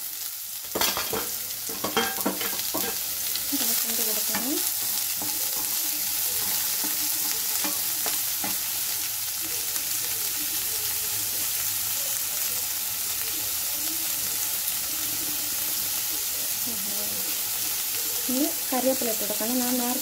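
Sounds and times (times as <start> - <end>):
onions sizzling in oil: 0.0 - 20.0
spatula tapping and scraping: 0.8 - 3.0, 4.2 - 8.7.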